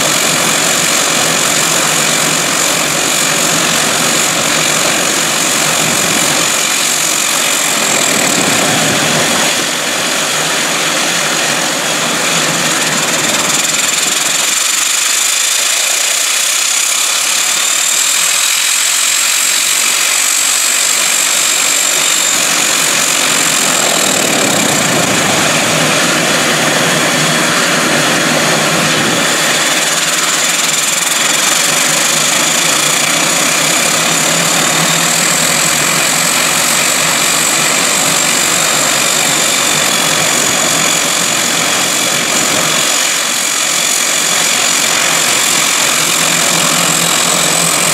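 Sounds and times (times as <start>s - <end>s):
high turbine whine: 0.0s - 47.9s
turboprop engines idling: 15.8s - 47.9s.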